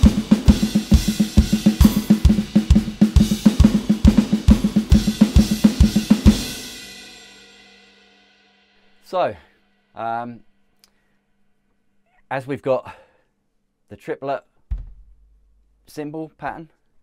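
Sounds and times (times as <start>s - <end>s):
bass drum: 0.0s - 6.6s, 14.7s - 15.5s
electronic drum cymbals: 0.0s - 8.9s.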